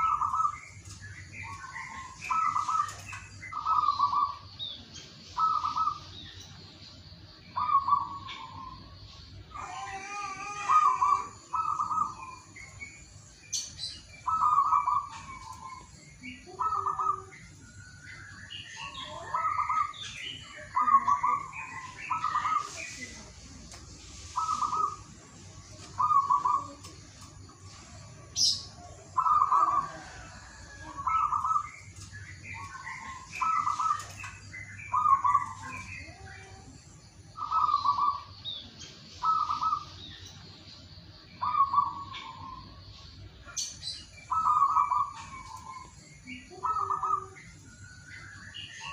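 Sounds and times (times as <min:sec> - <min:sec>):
small birds chirping faintly: 0:00.0 - 0:48.9
dove cooing: 0:05.4 - 0:06.1, 0:09.6 - 0:12.5, 0:14.2 - 0:17.4, 0:18.8 - 0:23.0, 0:24.4 - 0:25.2, 0:25.9 - 0:27.0, 0:28.3 - 0:36.6, 0:37.4 - 0:38.3, 0:39.2 - 0:40.0, 0:41.4 - 0:42.6, 0:44.3 - 0:47.4.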